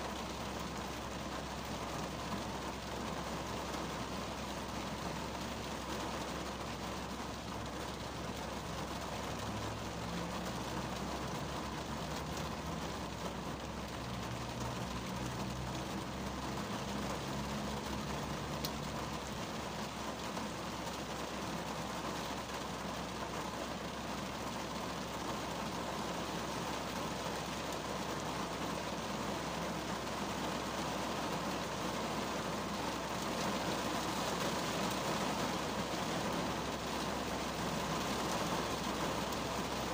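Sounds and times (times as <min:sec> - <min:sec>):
rain on car roof: 0:00.0 - 0:39.9.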